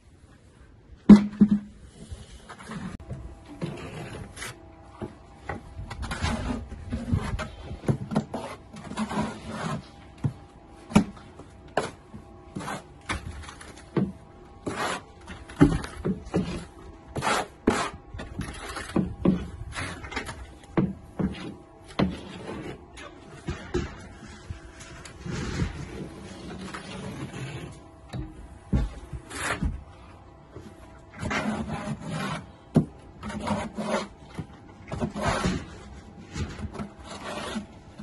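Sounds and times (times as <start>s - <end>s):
trowel scraping mortar on lath: 6.0s - 10.0s, 11.8s - 13.8s, 14.6s - 20.4s, 21.2s - 23.6s, 24.2s - 27.8s, 31.1s - 32.6s, 33.2s - 38.0s.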